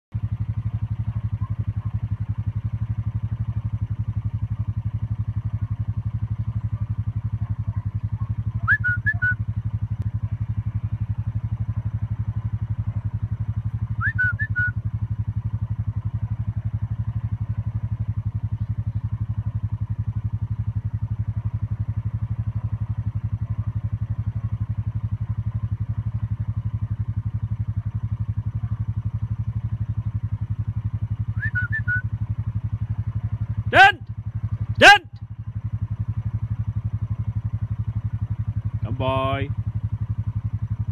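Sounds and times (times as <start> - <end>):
low pulsing engine drone: 0.1 - 40.9
shepherd's whistle notes: 8.6 - 9.4, 14.0 - 14.8, 31.3 - 32.1.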